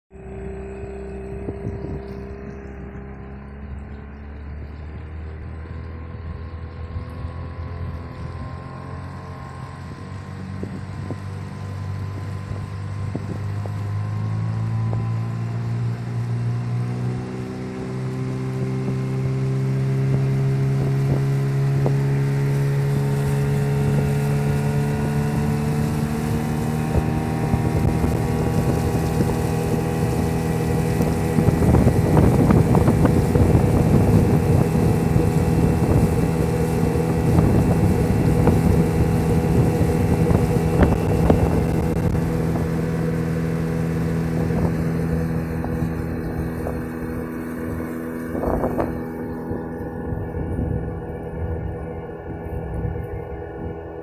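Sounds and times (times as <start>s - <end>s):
motorboat engine running: 0.1s - 54.0s
rough rushing noise: 10.6s - 51.5s.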